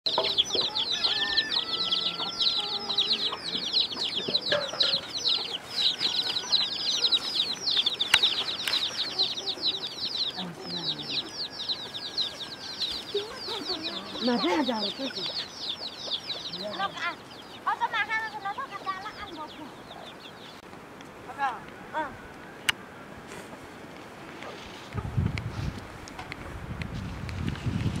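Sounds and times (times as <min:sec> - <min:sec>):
small birds chirping: 0:00.1 - 0:22.9.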